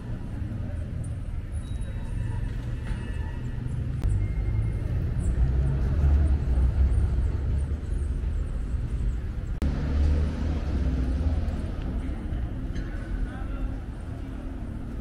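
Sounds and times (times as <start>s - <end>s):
low traffic rumble: 0.0s - 15.0s.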